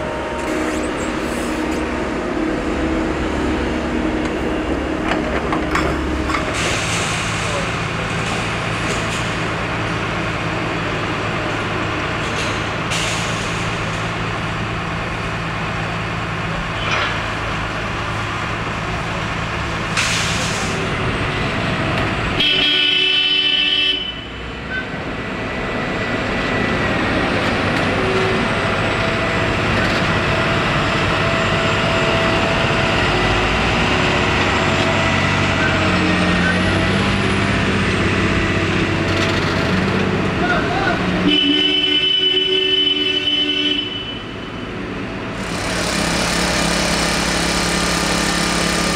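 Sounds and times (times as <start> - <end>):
diesel engine running: 0.0 - 22.5, 25.0 - 41.2, 44.7 - 48.9
horn sounding: 41.2 - 44.4.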